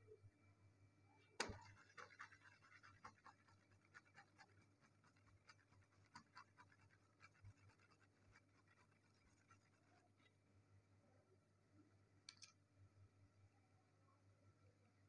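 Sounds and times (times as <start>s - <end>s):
faint light ticks and scratches: 1.4s - 10.3s.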